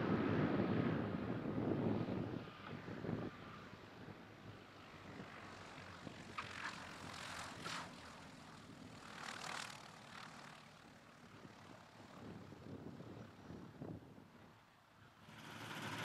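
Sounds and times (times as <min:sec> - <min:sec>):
propeller plane engines droning: 0:00.0 - 0:16.0.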